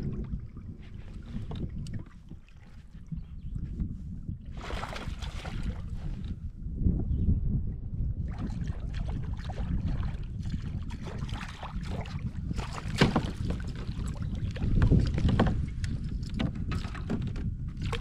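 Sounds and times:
wind on microphone: 0.0s - 18.0s
small water splashes: 4.5s - 6.2s, 8.3s - 15.6s, 17.8s - 18.0s
knocks on kayak: 12.6s - 13.6s, 14.8s - 15.6s.

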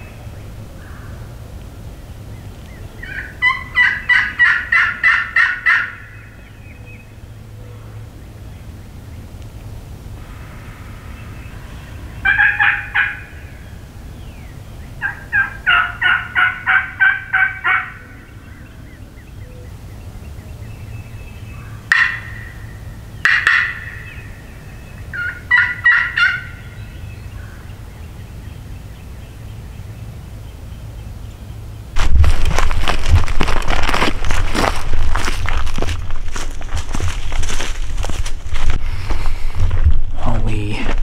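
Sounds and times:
turkey call yelps: 3.0s - 6.3s, 12.2s - 13.6s, 15.0s - 18.6s, 21.6s - 24.5s, 25.1s - 26.8s.

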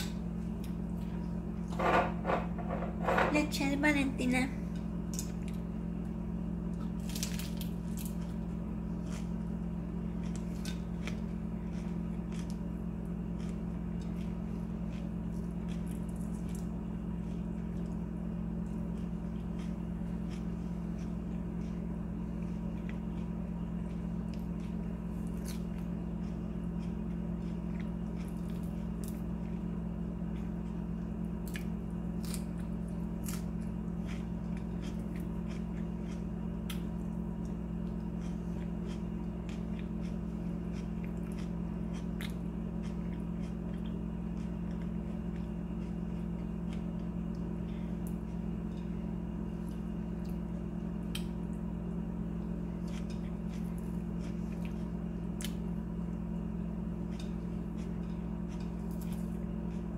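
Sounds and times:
soft chewing: 0.0s - 1.7s, 4.6s - 59.9s
steady low hum: 0.0s - 59.9s.

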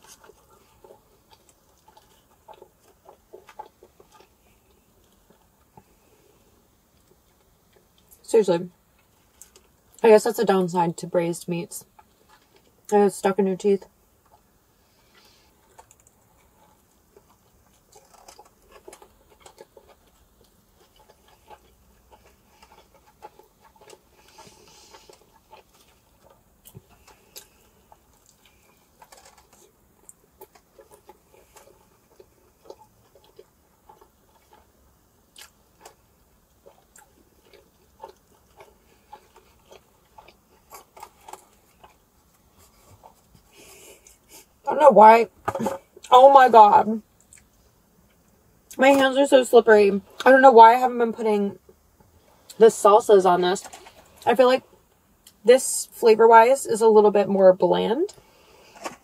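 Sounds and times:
person biting and chewing: 0.0s - 5.8s, 15.1s - 44.5s.

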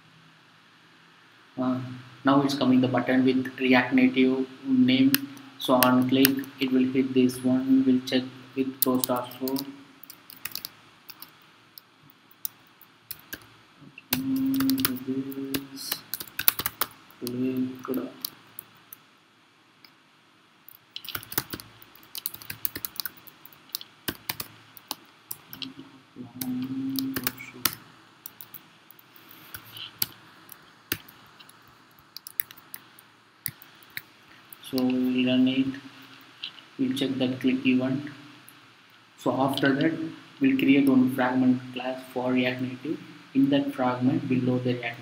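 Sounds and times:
typing on computer keyboard: 8.8s - 11.4s, 12.3s - 13.5s, 14.1s - 17.4s, 21.0s - 25.7s, 26.4s - 30.2s, 30.9s - 34.0s.

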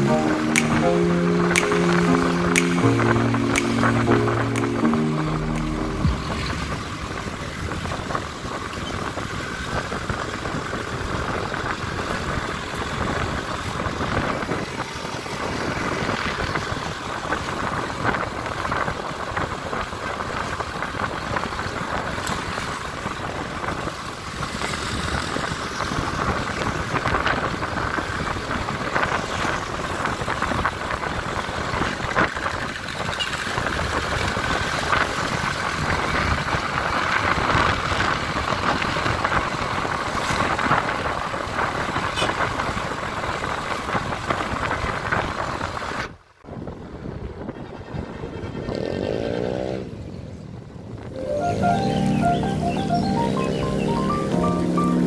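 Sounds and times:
vehicle engine drone: 0.0s - 19.9s
wind and tyre rush: 6.1s - 51.2s.

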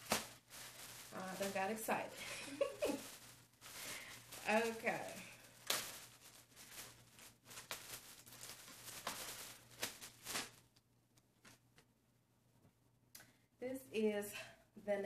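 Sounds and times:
plastic bag rustling and crinkling: 0.0s - 10.8s.

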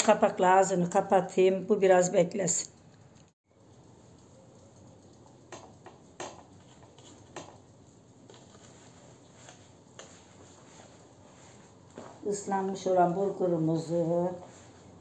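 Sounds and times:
fingers clicking on metal tray: 4.1s - 7.6s.

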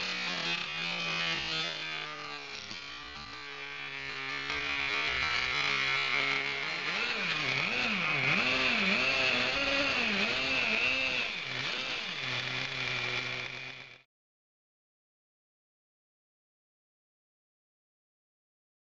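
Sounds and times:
small nitro engine revving: 0.0s - 14.1s.

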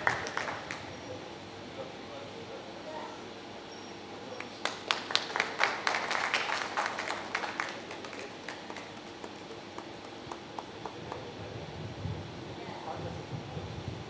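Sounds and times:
audience clapping: 0.0s - 0.9s, 4.4s - 11.4s.

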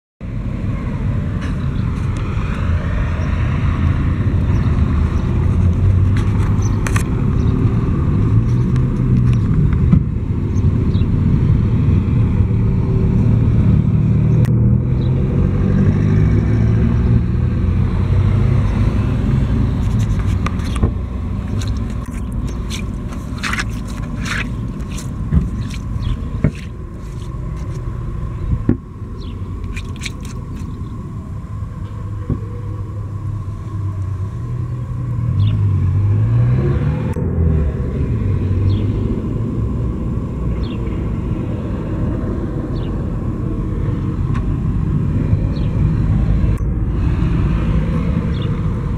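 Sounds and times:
engine passing: 0.2s - 48.9s
road traffic rumble: 0.2s - 48.9s
sharp scrapes and clicks: 19.7s - 27.9s, 29.6s - 30.8s.

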